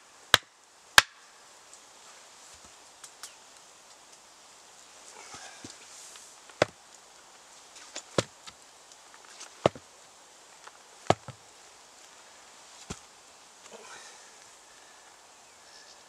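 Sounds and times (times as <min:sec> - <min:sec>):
wooden mallet knocking on stake: 0:09.6 - 0:09.8, 0:11.1 - 0:11.4.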